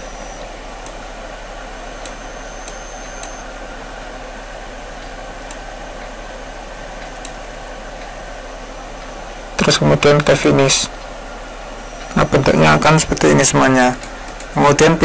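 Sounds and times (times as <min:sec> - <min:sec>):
low hum: 0:00.0 - 0:15.0
microphone hiss: 0:00.0 - 0:15.0.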